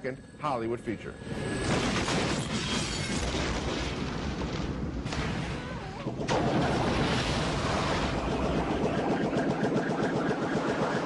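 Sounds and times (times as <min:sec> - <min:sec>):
explosion blasts: 0:01.6 - 0:09.3
gunfire: 0:01.6 - 0:11.0.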